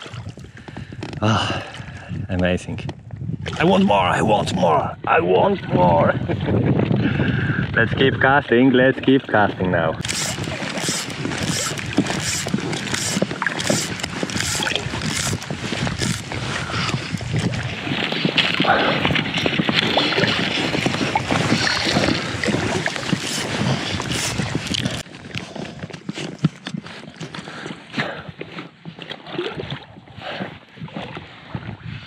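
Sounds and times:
choppy water splashing: 0.0s - 2.2s, 3.2s - 32.0s
wind on microphone: 0.0s - 27.3s, 28.0s - 32.0s.

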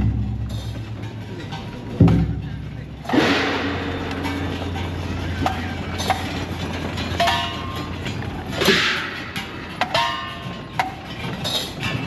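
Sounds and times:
metal gong struck in rhythm: 0.0s - 5.5s.

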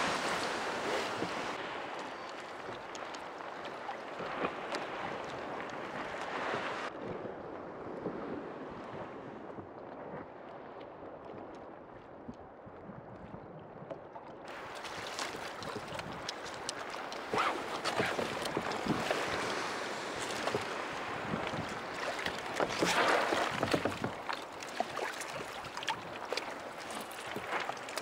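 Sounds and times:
water washing against kayak: 0.0s - 7.0s, 14.5s - 28.0s
small ticks and splashes: 1.9s - 6.4s, 14.5s - 19.2s, 21.4s - 28.0s
wind buffeting microphone: 15.3s - 24.3s.

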